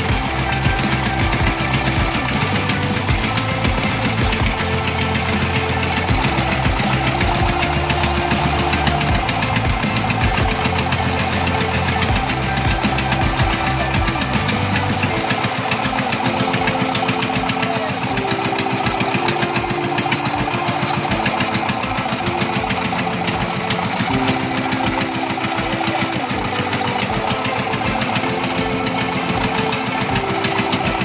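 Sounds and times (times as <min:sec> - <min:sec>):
motorboat engine knocking: 0:00.0 - 0:31.0.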